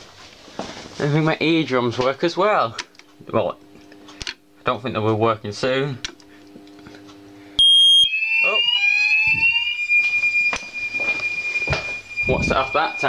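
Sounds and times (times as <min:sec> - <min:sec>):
fire alarm sweeping tones: 0:07.6 - 0:13.0
loud high alarm beep: 0:07.6 - 0:13.0.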